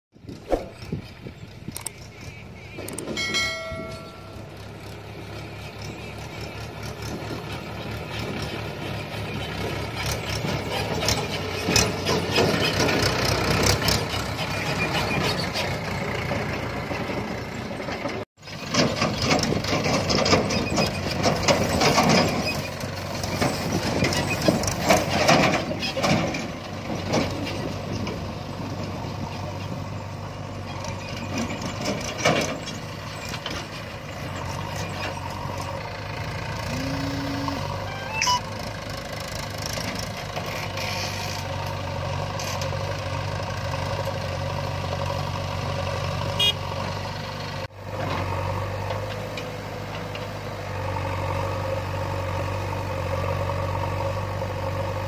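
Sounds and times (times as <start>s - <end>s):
tractor diesel engine: 0.2s - 55.0s
brief tone: 1.8s - 4.6s, 36.7s - 38.6s.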